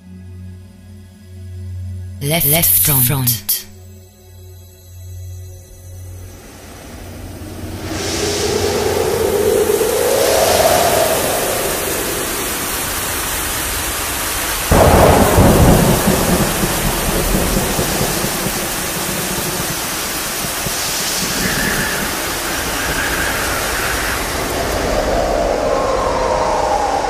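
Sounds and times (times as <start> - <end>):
steady rain: 7.0 - 26.5
thunder clap: 14.7 - 22.2.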